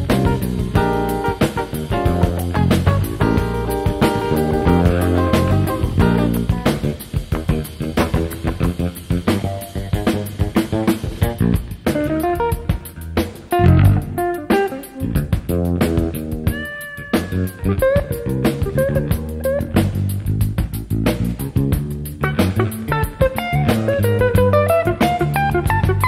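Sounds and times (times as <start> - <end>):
drum groove: 0.0 - 26.0
electric bass: 0.0 - 26.0
electric guitar single notes: 13.6 - 15.1.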